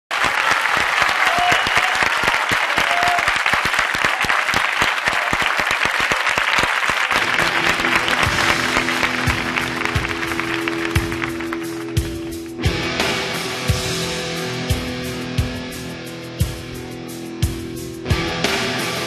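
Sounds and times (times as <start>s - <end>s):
audience applauding: 0.1s - 12.6s
music with sustained chords: 7.2s - 19.0s.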